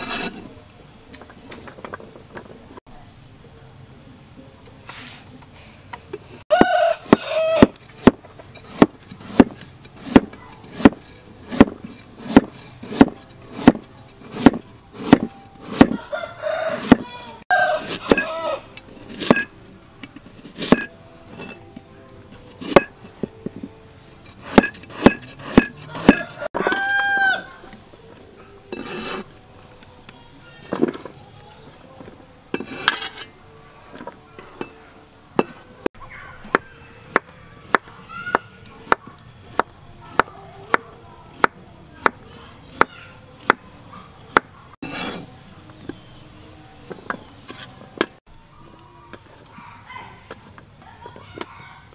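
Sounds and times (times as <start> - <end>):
rooster crowing: 6.5 - 7.8, 15.9 - 18.7, 25.9 - 27.7
knife chopping on cutting board: 8.0 - 16.0, 16.8 - 17.0, 24.4 - 26.4.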